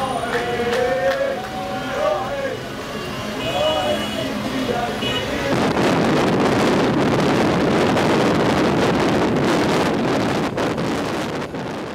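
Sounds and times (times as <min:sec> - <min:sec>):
traffic noise: 0:00.0 - 0:11.9
wind buffeting microphone: 0:05.5 - 0:11.9.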